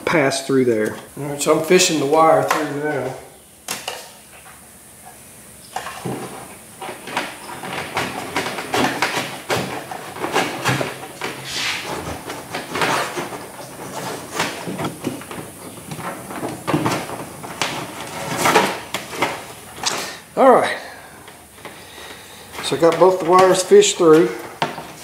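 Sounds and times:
wire scraping through holes: 5.7 - 20.2.

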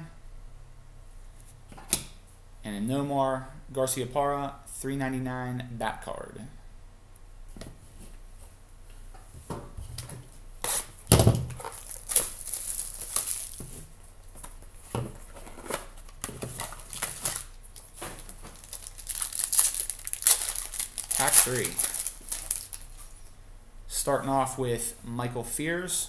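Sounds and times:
foil wrapper crinkling: 11.5 - 13.7, 15.2 - 23.2
cardboard boxes rustling and knocking: 12.7 - 18.8.

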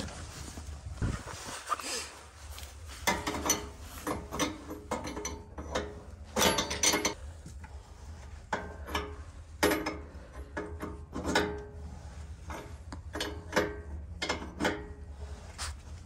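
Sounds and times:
wrench clinking and scraping on metal: 2.9 - 7.2, 8.5 - 15.3.

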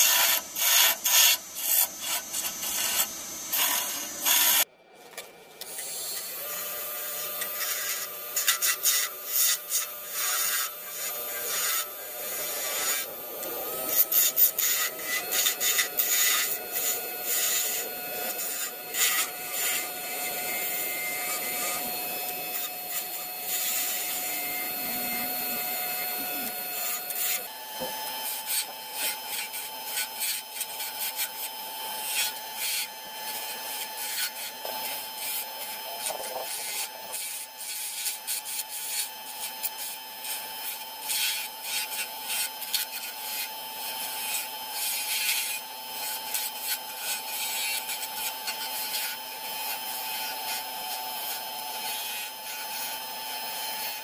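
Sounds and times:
lathe motor hum: 0.0 - 4.7, 5.8 - 37.9
turning tool scraping wood: 0.0 - 54.0.

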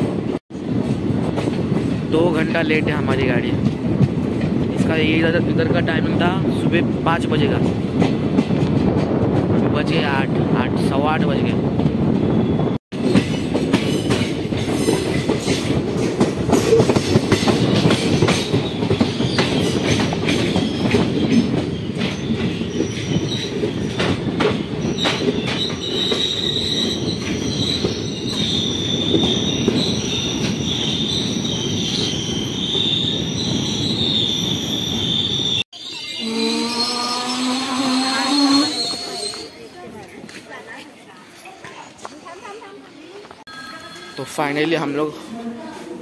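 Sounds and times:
train rumbling: 0.0 - 40.5
high steady brake squeal: 24.8 - 39.8.

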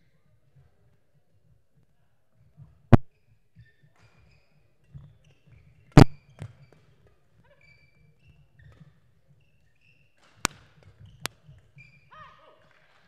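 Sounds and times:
shoes squeaking on court: 3.0 - 12.4.

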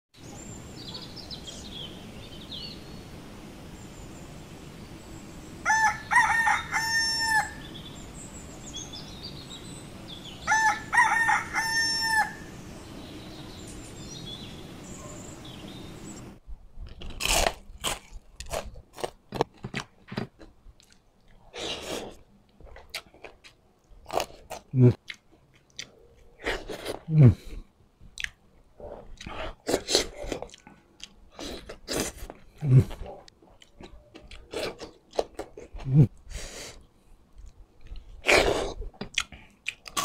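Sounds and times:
small birds chirping: 0.2 - 16.4
steady outdoor hiss: 0.2 - 19.3, 20.5 - 40.0
rooster crowing: 5.6 - 7.7, 10.4 - 12.6
crisp bites and chewing: 16.8 - 21.0.

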